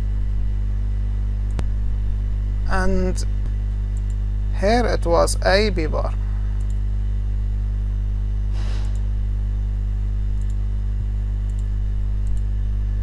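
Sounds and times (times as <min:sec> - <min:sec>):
electrical mains hum: 0:00.0 - 0:13.0
computer mouse clicks: 0:03.9 - 0:04.2, 0:06.6 - 0:06.8, 0:10.4 - 0:10.6, 0:11.4 - 0:12.5.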